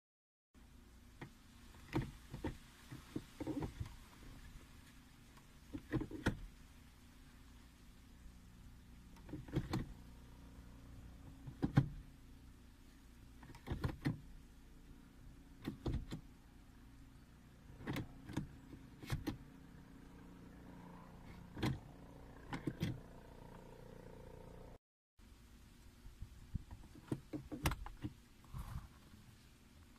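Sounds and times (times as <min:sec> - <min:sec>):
gear lever clicks and clunks: 0:01.2 - 0:04.0, 0:05.4 - 0:06.5, 0:09.2 - 0:09.9, 0:11.4 - 0:12.0, 0:13.4 - 0:14.2, 0:15.6 - 0:16.3, 0:17.8 - 0:19.4, 0:21.4 - 0:21.8, 0:22.4 - 0:23.1, 0:26.7 - 0:28.2.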